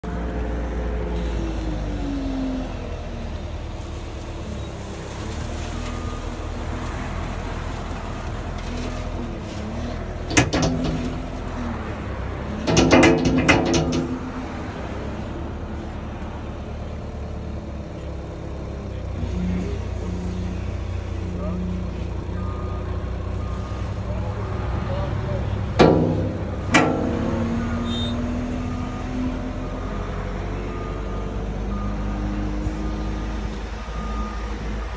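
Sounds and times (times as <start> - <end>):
loader engine running: 0.0 - 34.9
sharp knocks: 10.3 - 11.4, 12.7 - 14.6, 25.8 - 27.8
sharp metal bang: 10.3 - 11.4, 12.7 - 14.6, 25.8 - 28.4.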